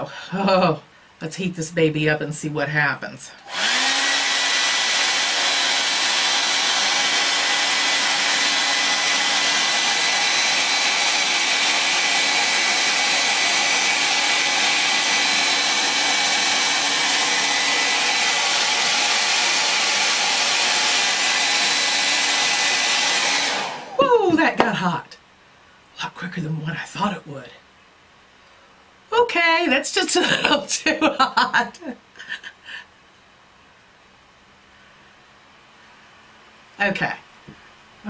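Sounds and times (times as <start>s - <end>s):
hair dryer running: 3.4s - 24.7s.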